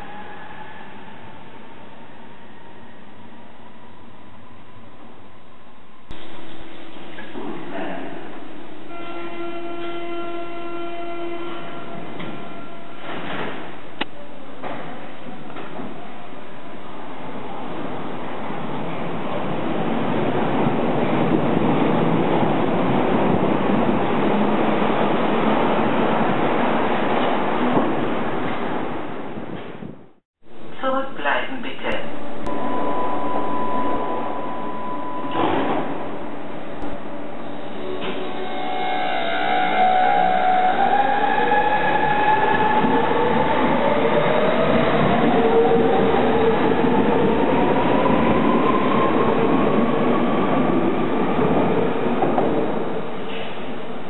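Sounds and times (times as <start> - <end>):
subway train rumbling past: 0.0 - 30.8, 31.6 - 54.0
train whine rising in pitch: 32.2 - 50.2.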